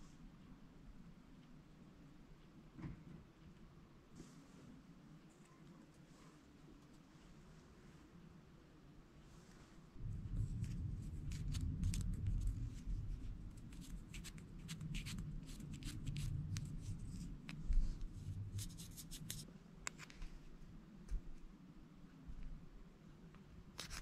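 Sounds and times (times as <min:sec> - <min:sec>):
hands rubbing near microphone: 0:09.4 - 0:20.4.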